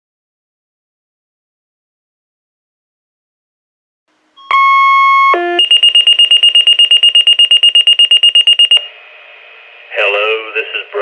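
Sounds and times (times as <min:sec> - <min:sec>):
pager paging tone: 0:04.4 - 0:08.9
rapid high-pitched alert beeping: 0:04.5 - 0:08.9.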